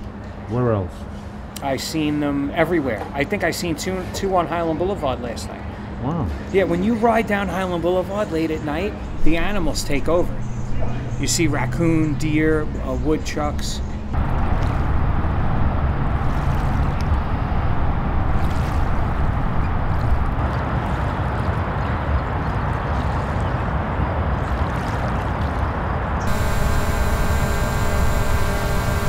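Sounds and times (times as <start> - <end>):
low shoreline rumble: 9.0 - 29.0
drone propeller whine: 9.1 - 20.5, 26.2 - 29.0
water gurgling along shore: 14.2 - 26.2.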